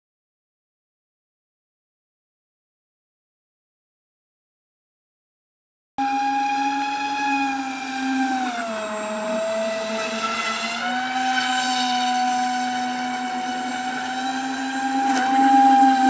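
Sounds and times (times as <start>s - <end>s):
electric motor propeller whine: 6.0s - 16.0s.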